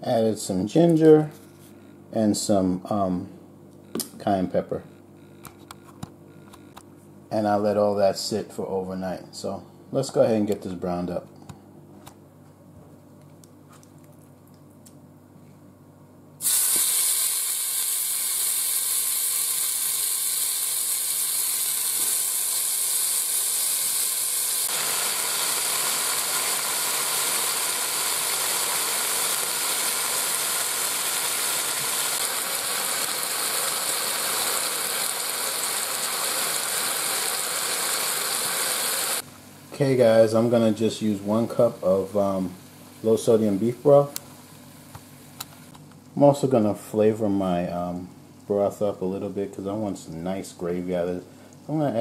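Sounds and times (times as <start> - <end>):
meat sizzling in hot oil: 16.4 - 39.2.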